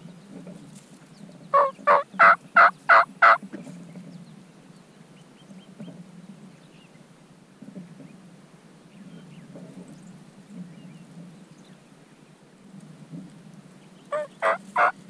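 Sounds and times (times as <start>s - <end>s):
turkey yelping: 1.6s - 3.4s, 14.1s - 15.0s.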